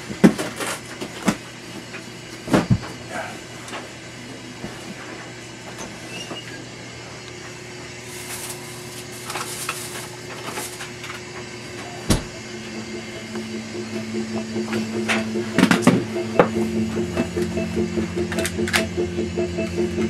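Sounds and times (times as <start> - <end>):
steady low hum: 9.9 - 20.0.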